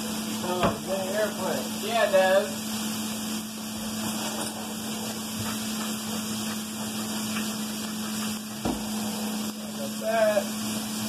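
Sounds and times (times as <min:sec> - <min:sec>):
bacon sizzling in a frying pan: 0:00.0 - 0:11.0
thump: 0:08.6 - 0:08.9.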